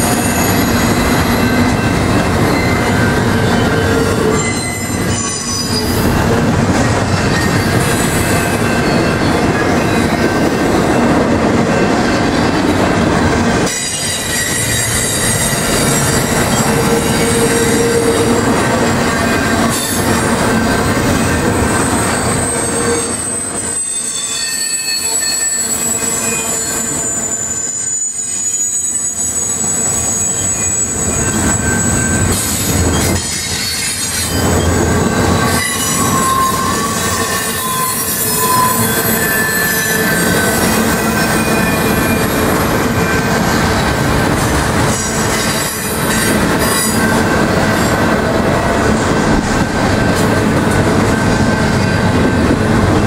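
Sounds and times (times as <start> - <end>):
freight train wheels rumbling on rail: 0.0 - 53.0
wheels squealing: 13.6 - 44.0.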